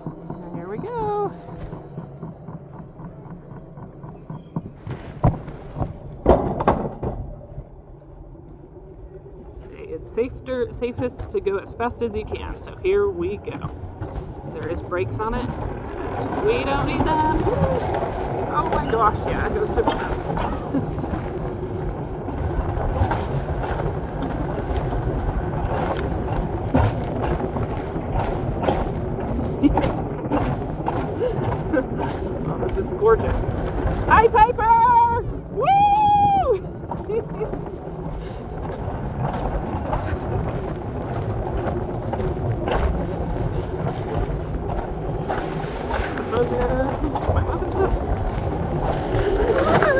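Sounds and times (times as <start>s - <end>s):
sled wheels rumbling on rails: 0.0s - 49.9s.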